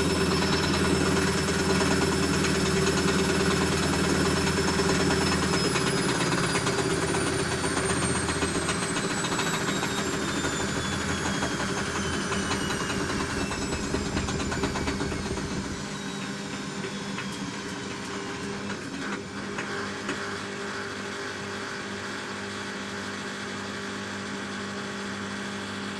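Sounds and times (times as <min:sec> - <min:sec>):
machine hum: 0:00.0 - 0:19.0
washing machine motor whine: 0:00.0 - 0:25.9
washing machine drum rumble: 0:10.9 - 0:16.8.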